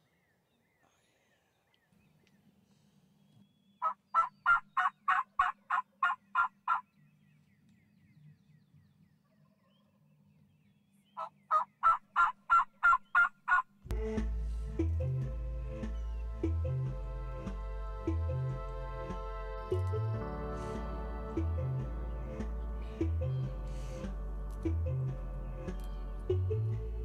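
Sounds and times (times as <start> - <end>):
turkey yelping: 3.8 - 6.9, 11.2 - 13.7
music: 13.9 - 27.0.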